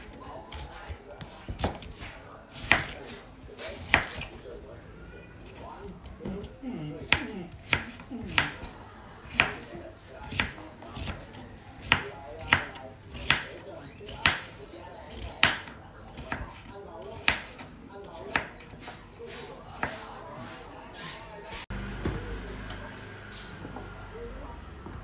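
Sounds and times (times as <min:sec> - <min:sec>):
knife chopping on wooden board: 0:00.5 - 0:03.2, 0:03.8 - 0:04.4, 0:07.0 - 0:08.7, 0:09.3 - 0:18.6.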